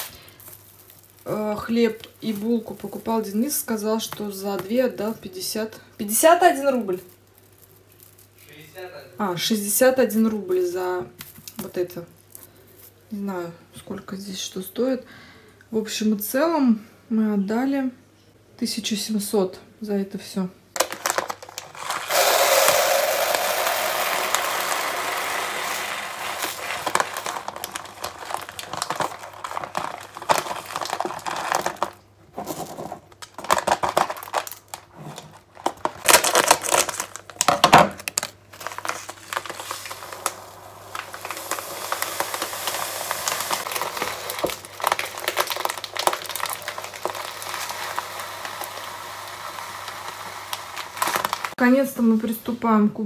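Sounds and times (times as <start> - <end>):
plastic and paper packets rustling: 0.0 - 9.0, 20.8 - 51.6
dry grain pouring into container: 21.8 - 31.8, 38.6 - 51.6.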